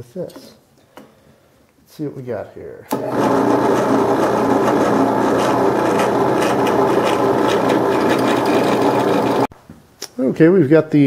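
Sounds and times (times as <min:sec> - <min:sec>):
drill press drilling: 0:02.9 - 0:09.5.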